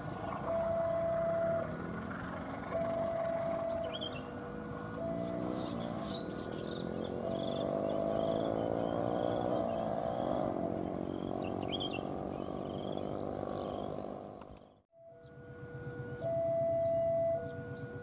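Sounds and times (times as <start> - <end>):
level-crossing warning alarm: 0.0 - 10.5, 14.9 - 18.0.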